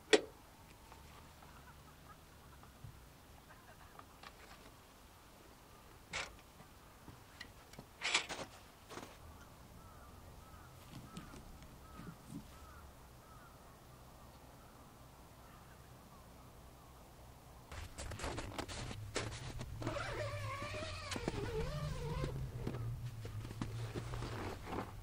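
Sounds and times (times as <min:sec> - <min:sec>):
crow cawing: 0:09.3 - 0:13.8.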